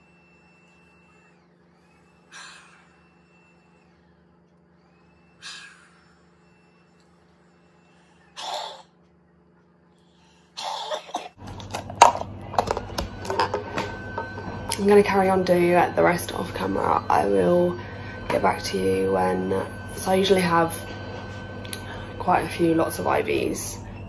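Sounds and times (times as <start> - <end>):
person coughing: 10.6 - 11.4.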